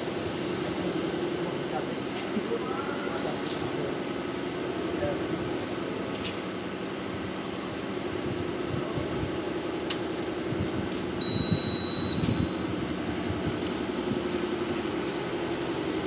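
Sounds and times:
low machine hum: 0.0s - 16.0s
high-pitched electronic beep: 11.2s - 12.7s
short click: 12.1s - 12.5s.

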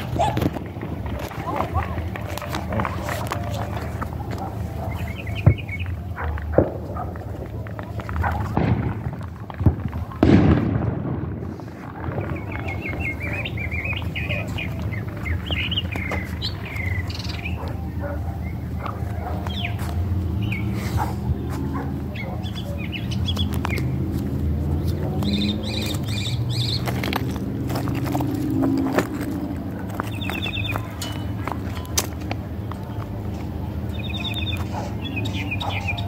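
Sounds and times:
fireworks bangs: 0.0s - 3.1s, 5.4s - 14.5s
steady low rumble: 0.0s - 35.6s
quick bird chirps: 24.8s - 28.6s.

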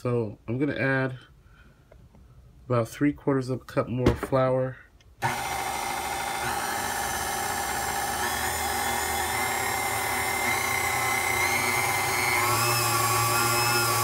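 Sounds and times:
stand mixer whining: 5.2s - 14.0s.

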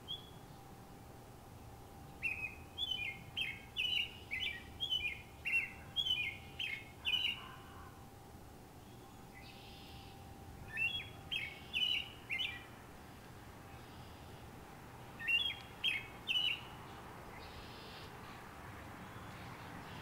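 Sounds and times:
robin singing whistled notes: 0.0s - 0.7s, 2.0s - 8.0s, 8.8s - 12.8s, 15.1s - 18.2s.

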